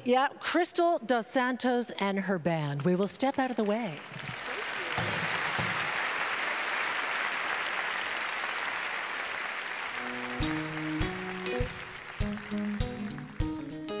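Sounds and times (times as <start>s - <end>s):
audience applauding: 3.7s - 13.9s
band playing: 9.8s - 14.0s.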